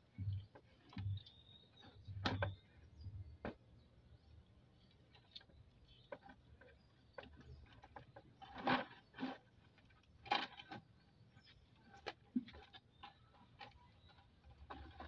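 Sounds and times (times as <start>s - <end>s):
bamboo pole knocking in plastic bucket: 2.1s - 2.6s.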